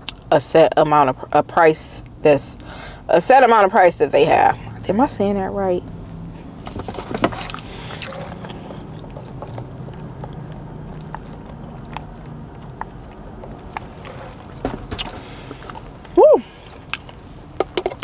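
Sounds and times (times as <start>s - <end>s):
low steady hum: 0.0s - 18.0s
chewing: 7.2s - 17.2s.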